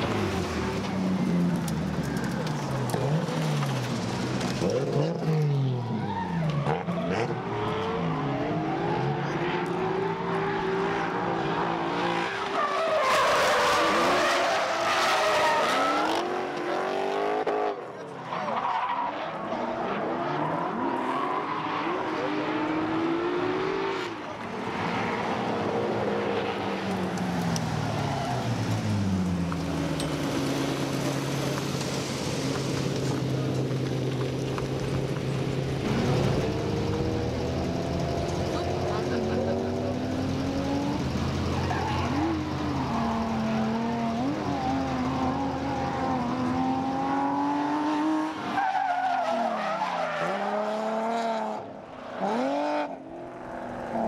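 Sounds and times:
car engines revving: 0.0 - 54.0.

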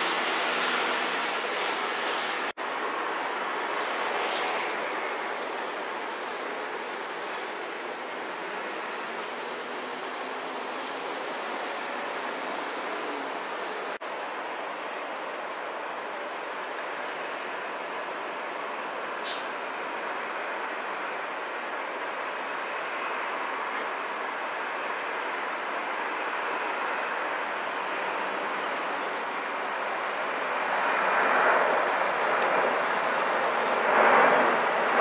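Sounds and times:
jet engines roaring: 25.3 - 35.0.

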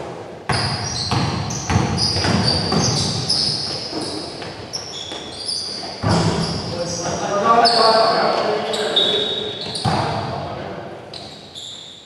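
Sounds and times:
basketball bouncing on gym floor: 0.5 - 5.3, 6.0 - 6.6, 9.6 - 10.4
players' footfalls and shuffling: 1.8 - 7.2.

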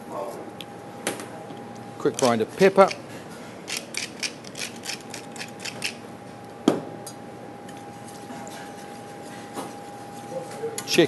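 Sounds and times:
pepper mill grinding: 3.7 - 6.0.

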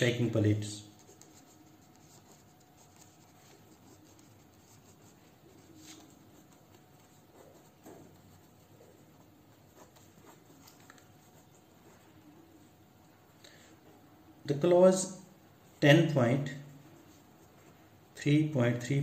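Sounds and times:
pen scratching on paper: 0.9 - 12.3.

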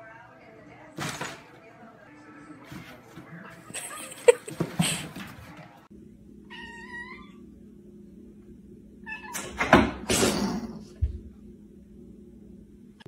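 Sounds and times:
cat meowing: 6.5 - 7.4, 9.0 - 9.5.

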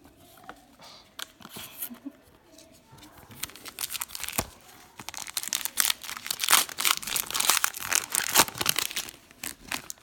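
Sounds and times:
wrapper crinkling: 3.4 - 10.0.

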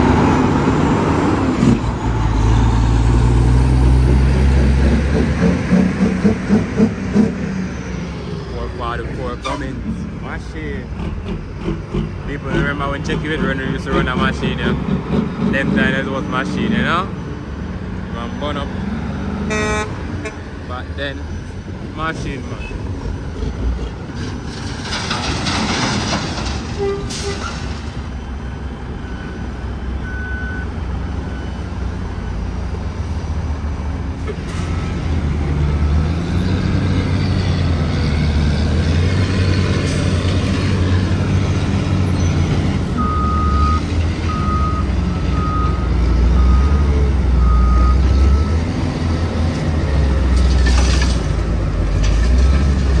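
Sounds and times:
reversing alarm beeps: 29.0 - 31.8, 43.0 - 48.6.

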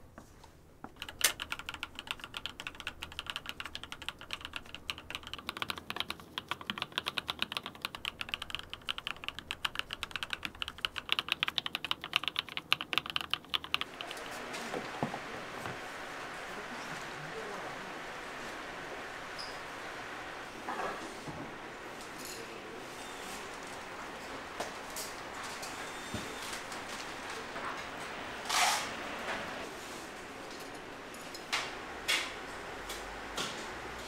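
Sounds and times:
typing on mechanical keyboard: 0.9 - 14.3.

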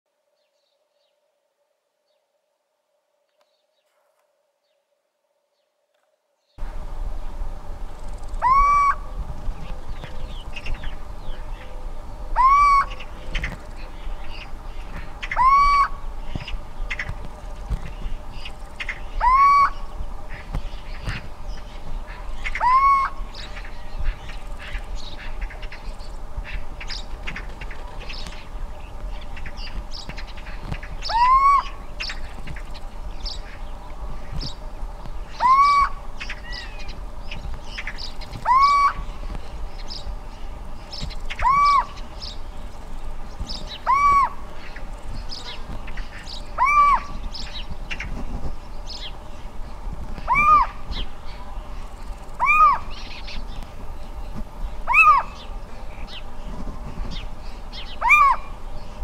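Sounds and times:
sparrows chirping: 7.9 - 59.0
owl hooting: 8.1 - 17.2, 18.1 - 25.8, 30.4 - 33.7, 35.2 - 39.9, 40.6 - 42.4, 43.6 - 48.1, 50.2 - 53.6, 54.8 - 56.3, 57.6 - 58.6.

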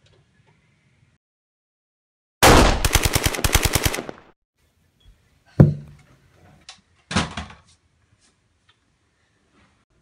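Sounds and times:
automatic machine-gun fire: 2.4 - 4.4.

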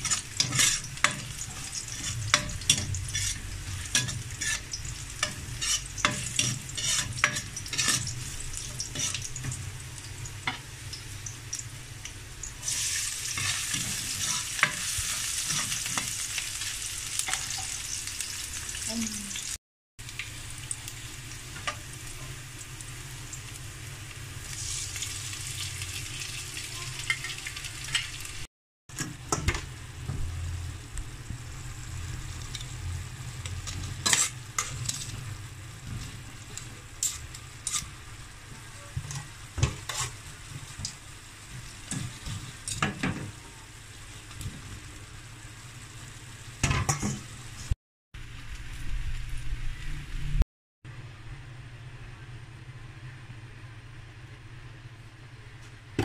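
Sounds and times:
metal spatula scraping a wok: 0.0 - 9.3, 12.7 - 16.2, 33.4 - 35.2, 35.8 - 38.0, 38.9 - 40.4
garlic and onion frying in oil: 0.0 - 54.0.

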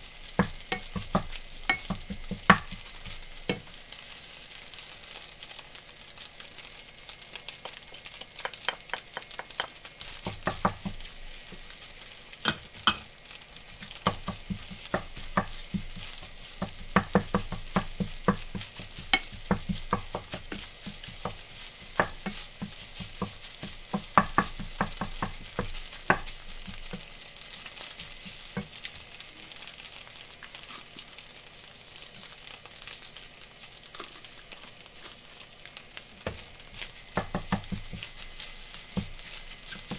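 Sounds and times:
rice sizzling in a frying pan: 0.0 - 39.9
wooden spatula scraping a pan: 0.2 - 4.2, 13.6 - 29.6, 33.7 - 35.5, 36.8 - 39.9.

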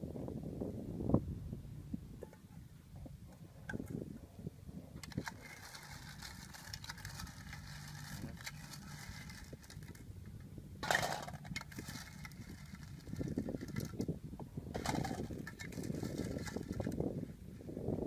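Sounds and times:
metal spoon scraping pot: 5.0 - 10.0, 10.8 - 14.0, 14.8 - 17.0
shellfish clattering into metal bowl: 5.0 - 10.0, 10.8 - 14.1, 14.8 - 17.0.

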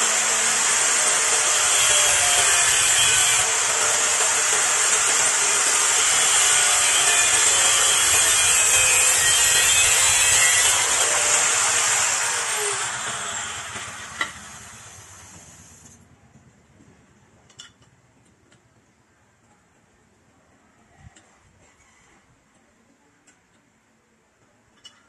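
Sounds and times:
power tool grinding: 0.0 - 16.0
tool spinning down whine: 0.0 - 16.0.

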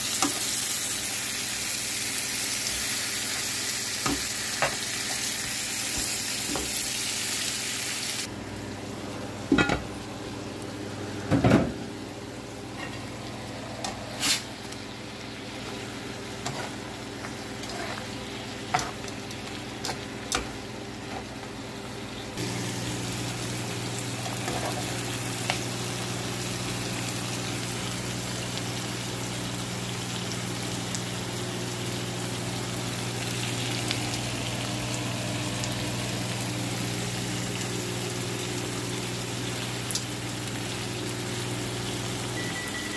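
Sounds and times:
meat sizzling in a frying pan: 0.0 - 8.3, 22.4 - 42.9.

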